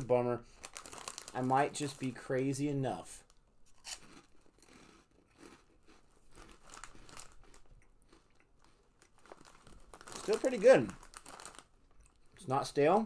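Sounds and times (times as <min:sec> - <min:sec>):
snack bag crinkling: 0:00.5 - 0:02.3, 0:03.2 - 0:12.4
faint crunching of snack chewing: 0:03.2 - 0:12.4.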